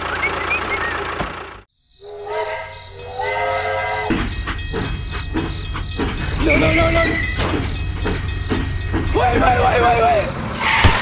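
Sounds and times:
horn-like steady tone: 0:02.0 - 0:04.2.

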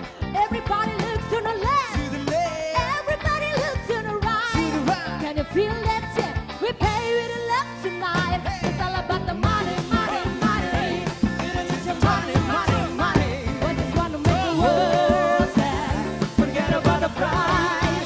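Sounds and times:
drums: 0:00.0 - 0:18.0
electric guitar: 0:00.0 - 0:18.0
people singing: 0:08.1 - 0:18.0.

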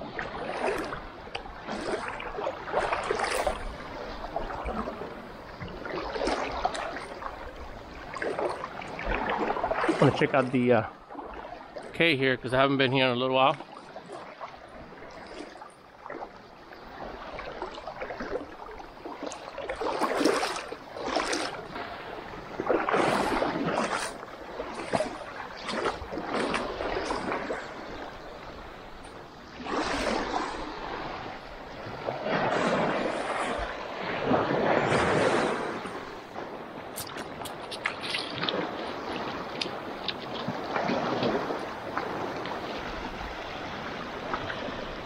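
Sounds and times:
small waves splashing on shore: 0:00.0 - 0:45.0
wind on microphone: 0:19.4 - 0:45.0.

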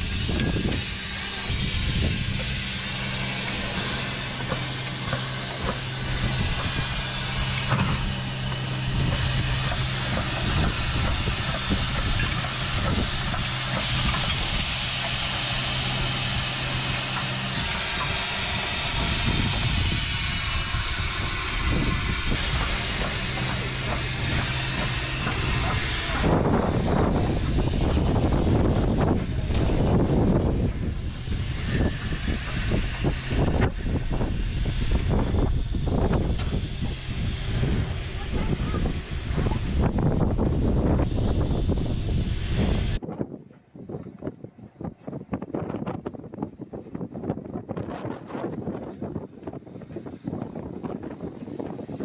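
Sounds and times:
low hum: 0:00.0 - 0:43.0
steam hissing: 0:00.0 - 0:43.0, 0:46.2 - 0:52.0.

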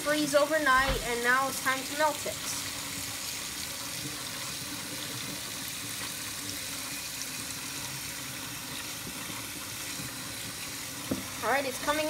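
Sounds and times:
water running from a tap: 0:00.0 - 0:12.0.

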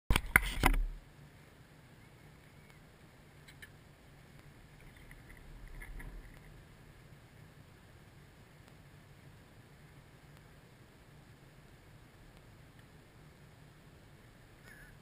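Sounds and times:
faint ticks: 0:08.6 - 0:08.8.

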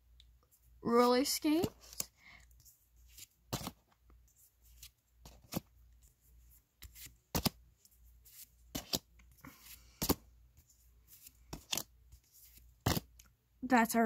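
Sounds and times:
trading cards snapping: 0:06.9 - 0:07.6, 0:11.5 - 0:11.9.

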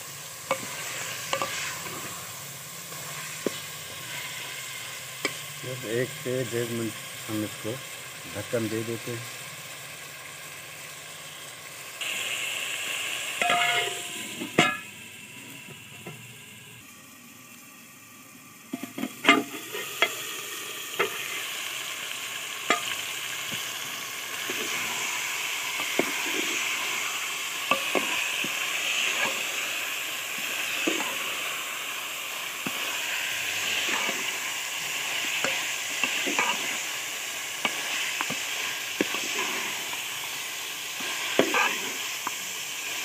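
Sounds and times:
meat sizzling in a pot: 0:00.0 - 0:43.0
metal lid clanking on pot: 0:13.4 - 0:14.9, 0:18.8 - 0:20.2
metal spoon scraping a pot: 0:41.4 - 0:41.8.

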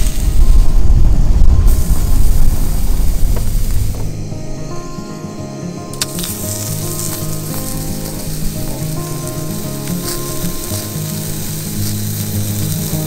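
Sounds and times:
steak sizzling in a pan: 0:00.0 - 0:00.6, 0:05.9 - 0:13.0
background music: 0:00.0 - 0:13.0.

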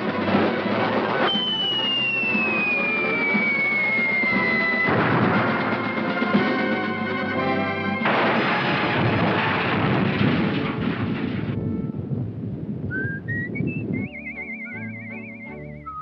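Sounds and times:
rising short notes: 0:01.3 - 0:05.9, 0:12.9 - 0:16.0
cartoon music: 0:01.3 - 0:06.0, 0:12.9 - 0:16.0
long rumbling crash: 0:02.5 - 0:07.4, 0:08.0 - 0:13.9.

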